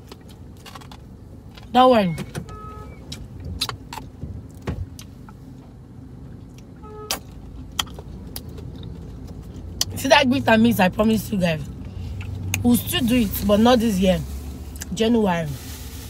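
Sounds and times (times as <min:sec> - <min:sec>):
chewing: 0:07.6 - 0:09.9.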